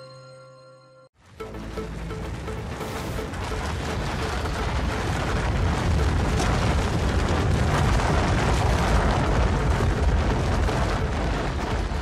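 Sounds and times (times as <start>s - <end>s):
avalanche rumble of rushing snow: 1.5s - 12.0s.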